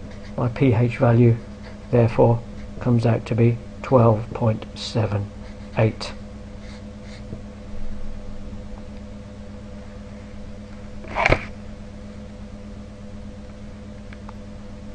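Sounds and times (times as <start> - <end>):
electrical hum: 0.0 - 14.9
felt-tip pen scratching paper: 5.4 - 6.0.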